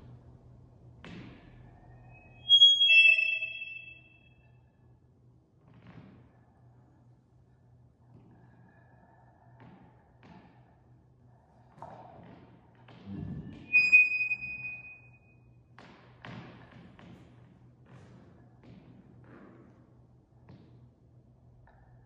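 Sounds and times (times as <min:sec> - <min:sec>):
bright ringing tone: 0:02.4 - 0:04.2, 0:13.7 - 0:15.1.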